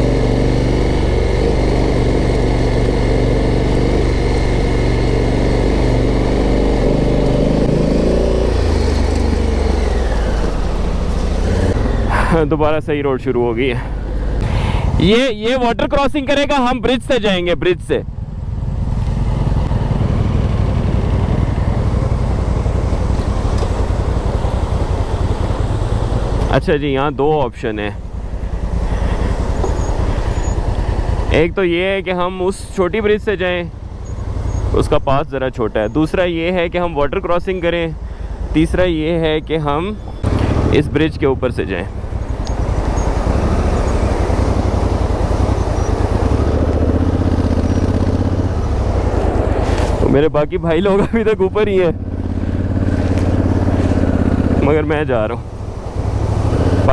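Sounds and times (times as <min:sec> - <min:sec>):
motorcycle engine rumbling: 0:00.0 - 0:56.9
road noise: 0:00.0 - 0:56.9.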